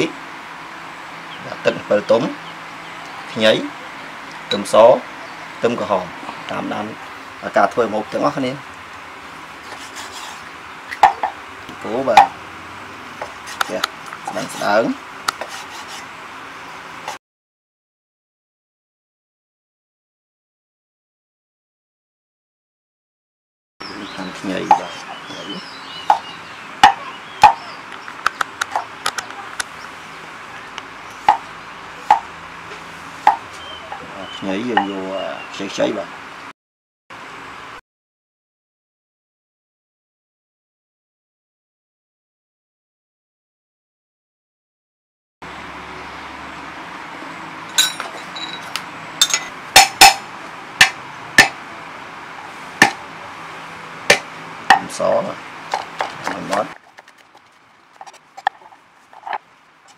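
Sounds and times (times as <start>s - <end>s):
cleaver chopping on wooden board: 26.1s - 27.6s, 49.8s - 50.2s, 50.8s - 51.6s, 54.1s - 54.9s
light clinks: 47.7s - 49.5s.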